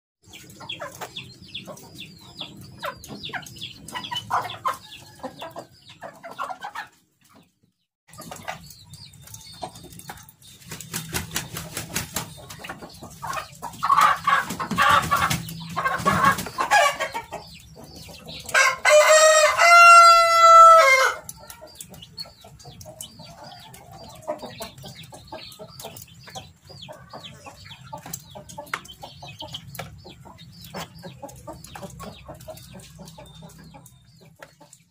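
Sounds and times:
chickens clucking: 0.2 - 34.9
rooster crowing: 18.6 - 21.2.

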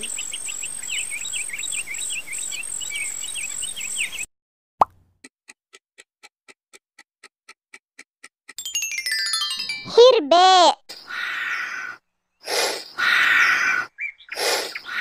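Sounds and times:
cartoon pop: 4.8 - 5.0
quick high chirping calls: 12.4 - 15.0.

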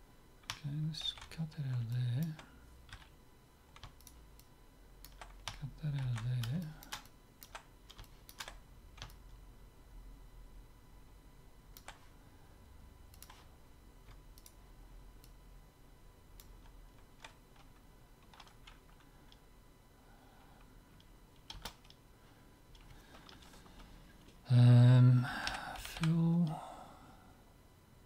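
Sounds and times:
computer keyboard and mouse clicks: 3.7 - 9.2, 11.8 - 12.0, 13.1 - 13.4, 16.4 - 19.4, 21.0 - 22.0.

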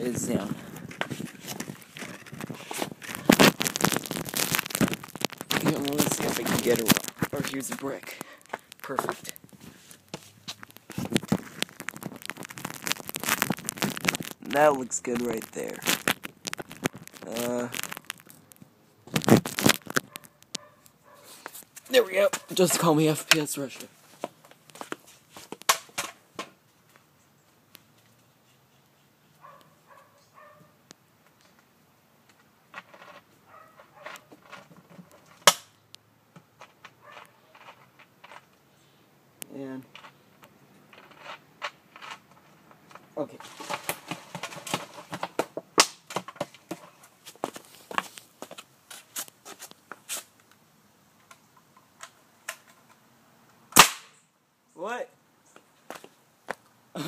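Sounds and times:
squeaky plastic creak: 0.9 - 9.5, 10.6 - 20.6
pellet gun shot: 53.8 - 54.2.

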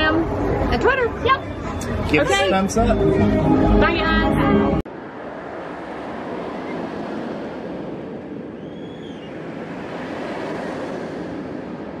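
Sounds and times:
wind rushing: 3.2 - 12.0.

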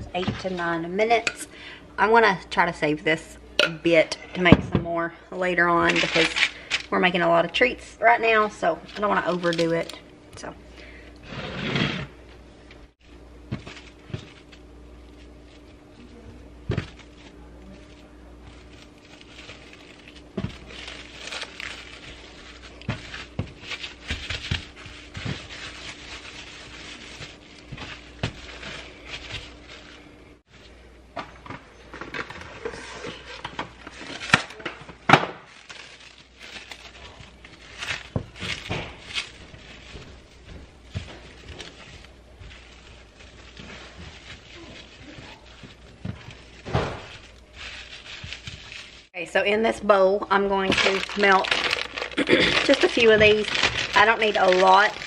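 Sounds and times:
steady low hum: 0.0 - 55.0
plastic wrap rustling: 5.6 - 10.5, 12.9 - 30.7, 32.0 - 49.2, 50.0 - 55.0
baking sheet scraping on countertop: 11.2 - 12.2.

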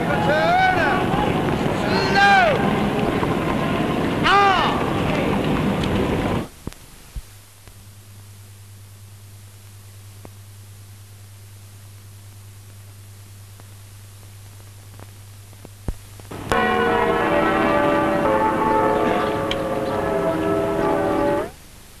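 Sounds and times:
faint hum: 0.0 - 22.0
bells ringing loudly: 16.4 - 21.5.

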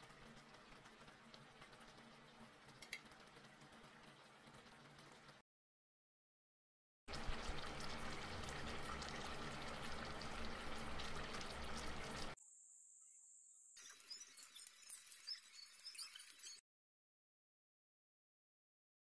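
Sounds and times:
water boiling in pot: 0.0 - 5.4, 7.1 - 12.4.

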